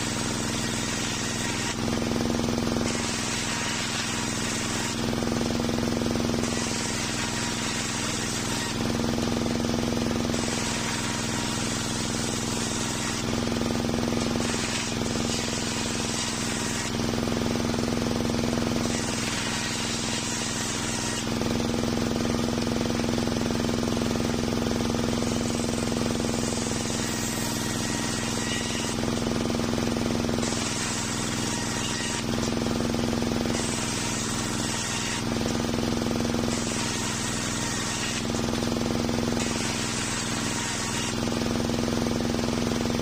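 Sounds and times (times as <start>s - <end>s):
circular saw running: 0.0s - 43.0s
saw blade ripping wood: 0.0s - 43.0s.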